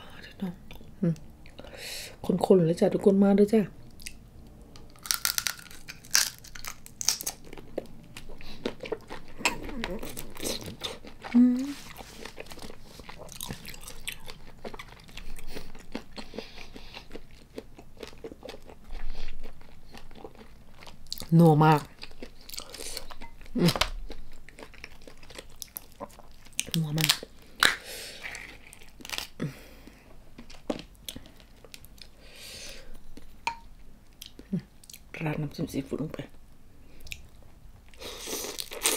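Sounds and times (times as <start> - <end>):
chewing: 4.9 - 21.3, 21.9 - 29.3.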